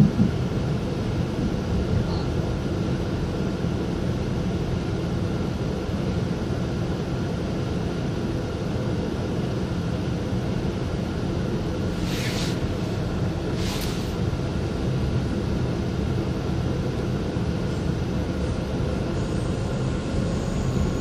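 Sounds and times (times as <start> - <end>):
train wheels rumbling on rails: 0.0 - 2.9.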